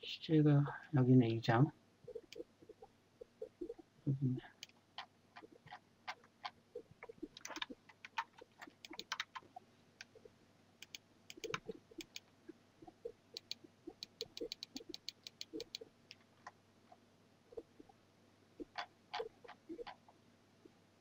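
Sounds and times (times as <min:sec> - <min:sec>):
mouse scroll wheel clicking: 0:07.3 - 0:09.4, 0:10.8 - 0:12.2, 0:13.4 - 0:15.8.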